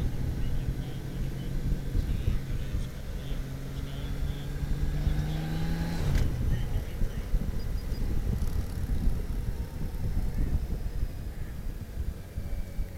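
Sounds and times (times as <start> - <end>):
motorcycle engine humming: 0.0 - 12.9
wind rumble on microphone: 0.0 - 12.9.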